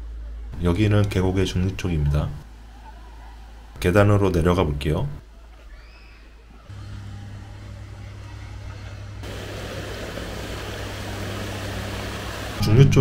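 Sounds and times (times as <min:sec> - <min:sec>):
stream flowing over rocks: 0:09.2 - 0:12.6.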